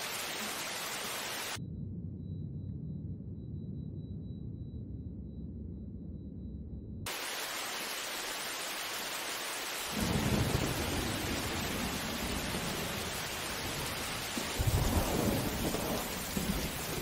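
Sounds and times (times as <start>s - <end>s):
heavy rain hissing: 0.0s - 1.6s, 7.1s - 17.0s
low rumble of thunder: 10.0s - 17.0s.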